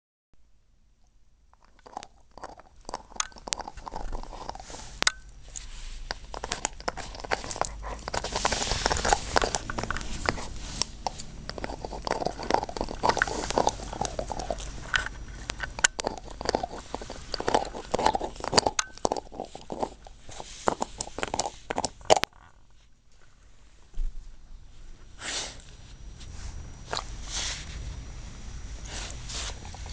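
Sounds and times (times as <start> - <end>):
dog gnawing a bone: 1.5 - 22.7, 28.8 - 29.9
teeth crunching on bone: 1.5 - 22.7.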